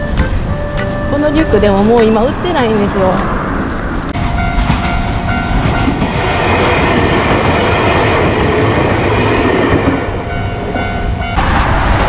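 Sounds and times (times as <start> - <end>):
crossing warning bell ringing: 0.0 - 3.2, 4.2 - 12.0
train wheels clacking on rails: 4.2 - 12.0.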